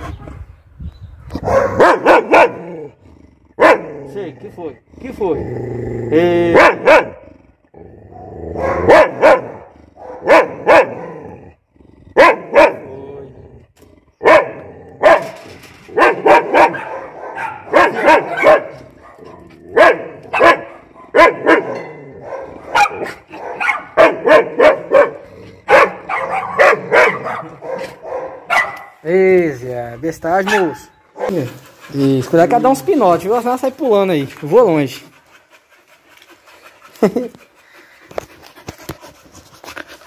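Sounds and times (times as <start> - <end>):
dog barking: 1.4 - 2.6, 3.6 - 3.9, 6.5 - 7.2, 8.6 - 11.1, 12.2 - 12.8, 14.2 - 15.4, 16.0 - 29.0, 30.4 - 31.4.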